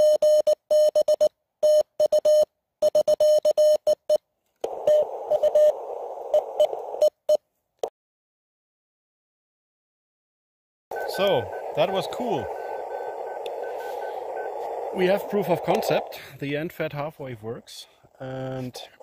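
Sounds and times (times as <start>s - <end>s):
radio band noise hiss: 4.7s - 7.0s, 10.9s - 19.0s
morse code tones: 4.8s - 7.2s, 10.9s - 16.2s.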